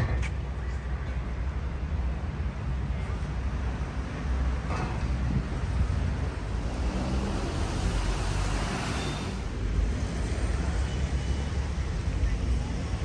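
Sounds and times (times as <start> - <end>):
street traffic noise: 0.0 - 13.0
vehicle passing: 6.2 - 11.6.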